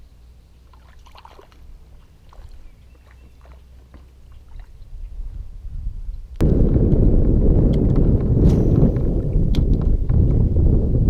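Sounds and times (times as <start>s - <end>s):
water splashing and dripping: 0.6s - 5.0s.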